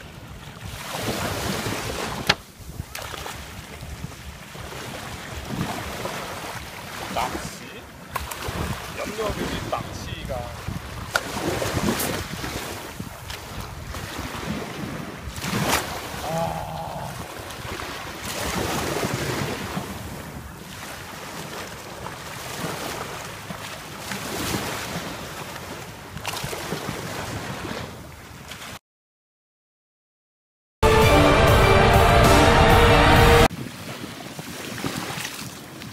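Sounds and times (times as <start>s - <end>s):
wind buffeting microphone: 0.0s - 16.2s
surf washing onto beach: 0.0s - 25.8s.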